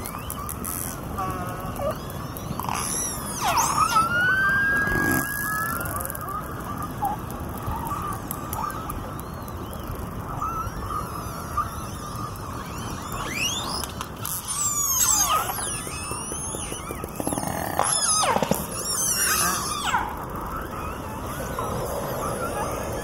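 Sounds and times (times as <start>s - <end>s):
high sliding whistles: 0.0s - 23.0s.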